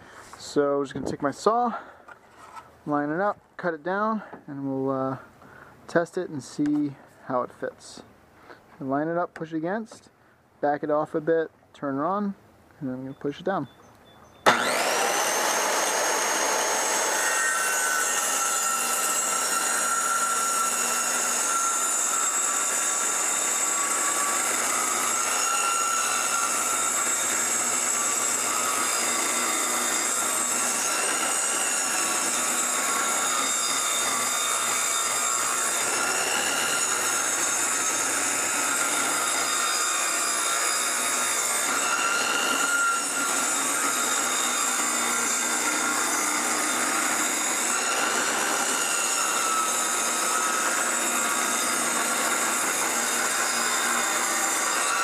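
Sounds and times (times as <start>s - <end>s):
circular saw cutting wood: 14.4s - 55.0s.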